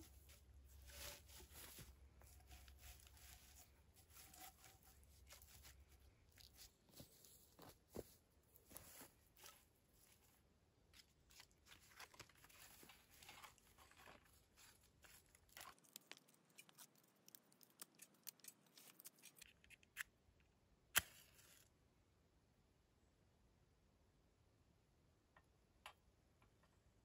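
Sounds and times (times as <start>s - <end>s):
small objects clicking and scraping: 11.3s - 20.1s.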